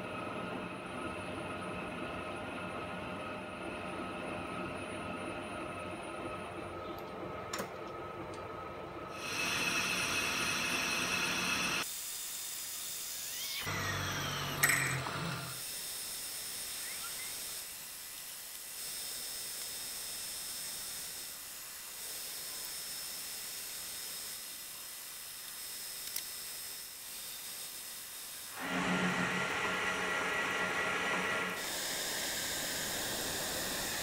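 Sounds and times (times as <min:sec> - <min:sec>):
metal lathe running: 0:09.1 - 0:11.9, 0:28.5 - 0:34.0
drill cutting into metal: 0:09.1 - 0:34.0.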